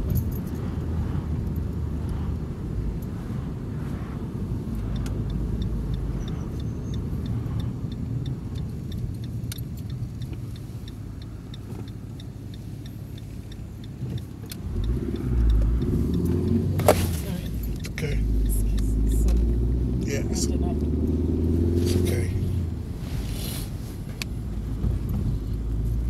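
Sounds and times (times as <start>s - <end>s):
engine and road rumble: 0.0s - 26.0s
faint rapid high ticks: 4.7s - 16.7s.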